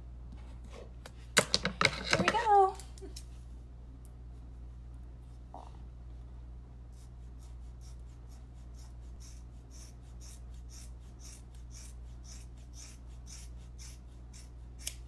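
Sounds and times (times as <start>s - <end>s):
steady low hum: 2.7s - 15.0s
scissors snipping hair: 8.8s - 15.0s.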